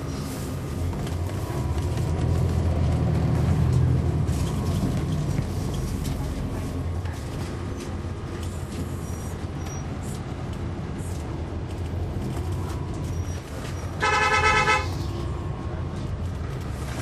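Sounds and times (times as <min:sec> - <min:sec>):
bus diesel engine humming: 0:00.0 - 0:17.0
vehicle horn: 0:14.0 - 0:15.0.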